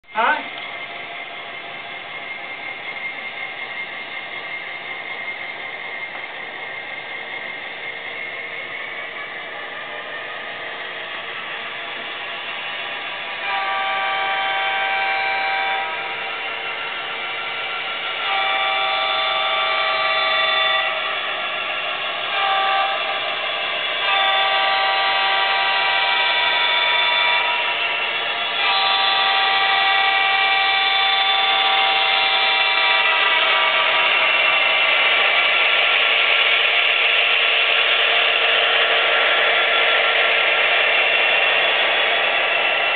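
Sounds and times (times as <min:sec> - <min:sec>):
multi-chime air horn blasts: 0:13.4 - 0:16.2, 0:24.0 - 0:27.7.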